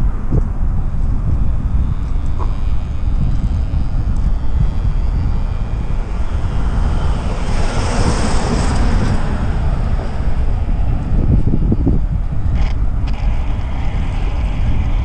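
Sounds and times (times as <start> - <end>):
wind buffeting microphone: 0.0 - 15.0
motorhome passing: 5.5 - 12.2.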